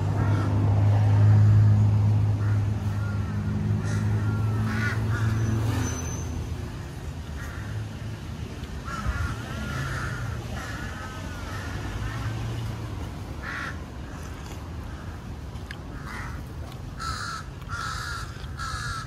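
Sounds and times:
heavy vehicle engine humming: 0.0 - 19.0
crows cawing: 0.1 - 1.7, 2.4 - 5.5, 6.7 - 8.0, 8.8 - 12.6, 13.4 - 19.0.

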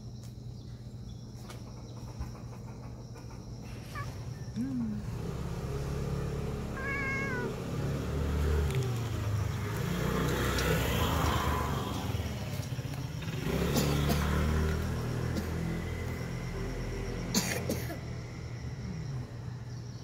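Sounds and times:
cat meowing: 6.7 - 7.6.

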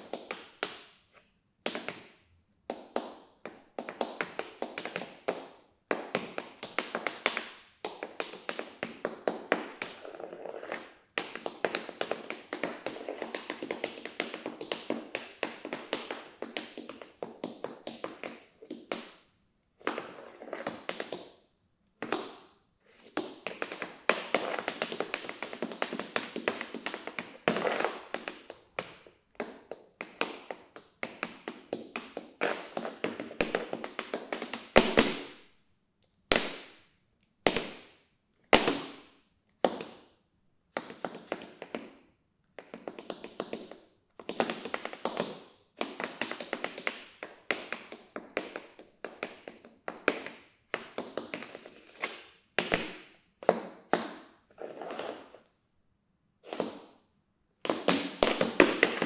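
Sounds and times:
tap shoes striking floor: 0.0 - 2.1, 2.7 - 19.2, 19.8 - 21.3, 23.1 - 35.4, 36.3 - 36.8, 37.5 - 38.0, 38.6 - 40.0, 40.8 - 42.0, 42.6 - 55.2, 57.6 - 59.0.

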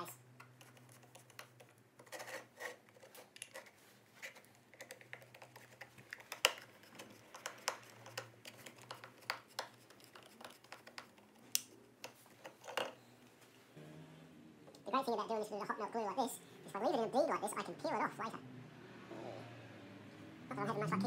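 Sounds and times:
plastic parts being handled: 0.4 - 13.0.

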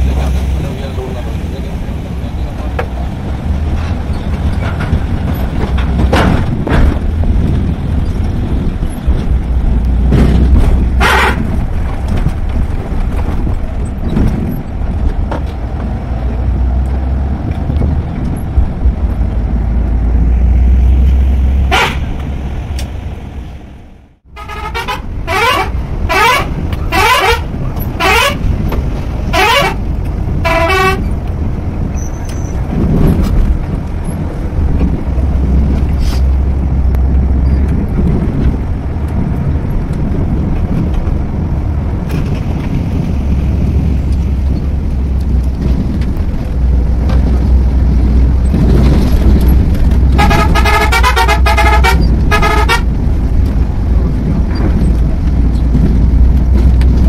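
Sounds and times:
coach engine drone: 0.0 - 57.0
road noise: 0.0 - 57.0
vehicle horn honks: 21.7 - 22.0, 24.4 - 27.4, 29.3 - 29.8, 30.4 - 31.1, 50.2 - 52.9.

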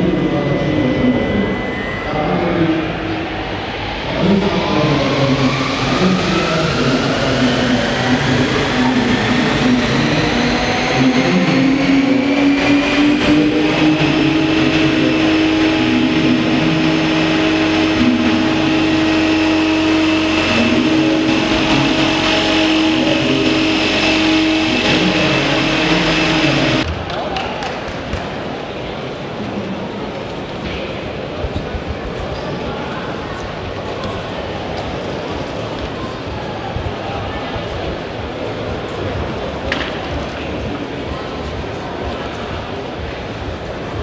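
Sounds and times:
machine whine rising in pitch: 0.0 - 26.9.

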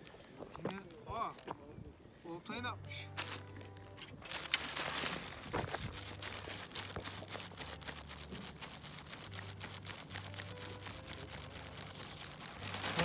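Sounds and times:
plastic bag crinkling and rustling: 3.2 - 13.0.

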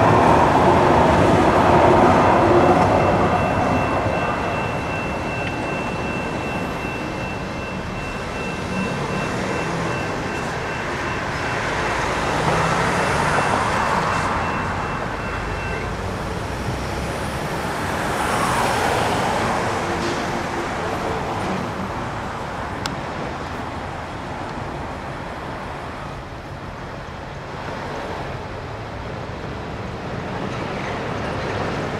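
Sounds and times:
road traffic: 0.0 - 31.9
vehicles driving over crossing: 0.0 - 31.9
electronic crossing bells ringing: 2.0 - 16.0.

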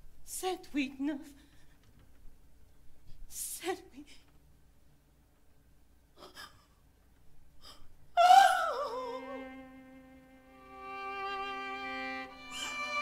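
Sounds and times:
held string chords: 9.2 - 13.0.

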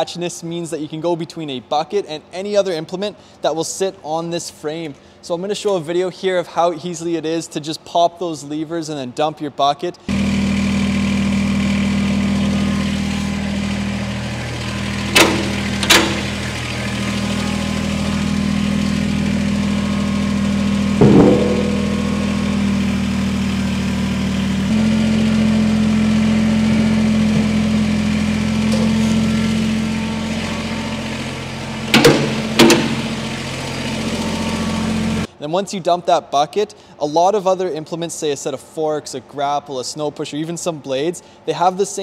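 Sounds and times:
diesel tractor engine idling: 10.1 - 35.3
loader bucket clanking: 12.8 - 35.3
sharp metal clicks of levers: 15.1 - 16.4.

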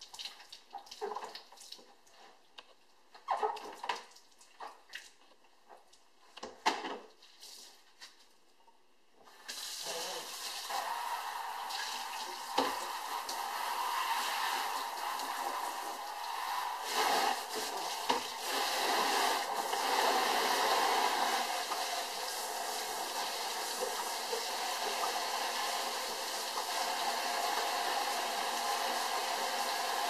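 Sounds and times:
faucet sprayer hissing into bucket: 9.4 - 30.0.

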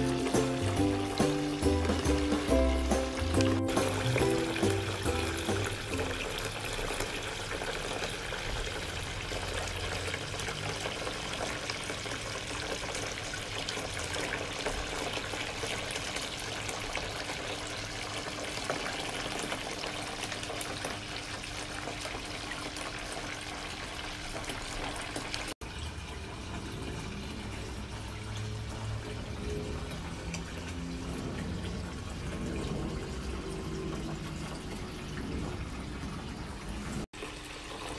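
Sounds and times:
running falling water: 0.0 - 12.9.

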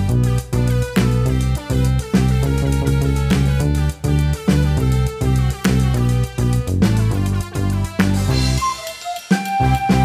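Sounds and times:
background music with bass line: 0.0 - 10.0.

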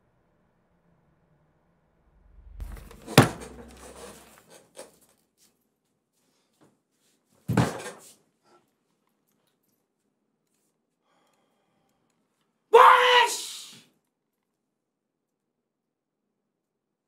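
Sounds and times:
loud bang: 2.0 - 4.4
heavy thump: 2.2 - 4.4.

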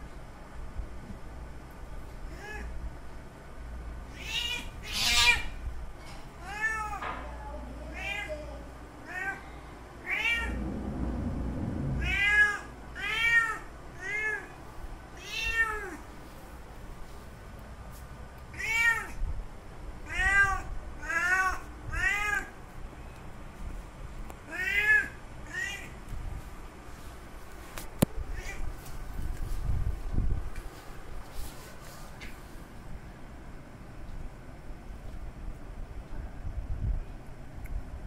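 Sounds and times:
cat meowing: 4.1 - 5.6, 9.0 - 10.6, 12.0 - 14.6, 15.2 - 16.0, 20.1 - 22.5.

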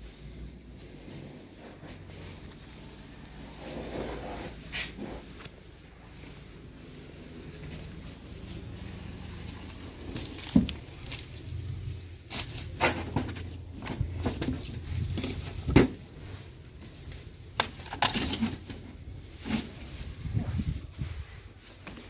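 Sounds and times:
baskets and bucket knocking together: 9.7 - 11.5, 12.3 - 16.2.

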